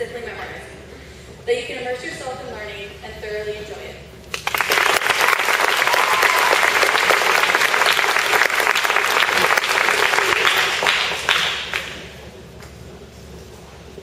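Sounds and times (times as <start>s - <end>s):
audience applauding: 4.3s - 12.1s.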